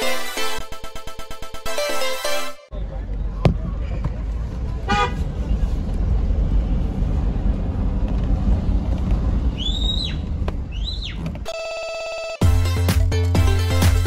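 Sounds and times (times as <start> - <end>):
music with strong beat: 0.0 - 2.6, 12.4 - 14.0
car driving on dirt lane: 3.0 - 11.5
rising and falling whistles: 9.5 - 11.2.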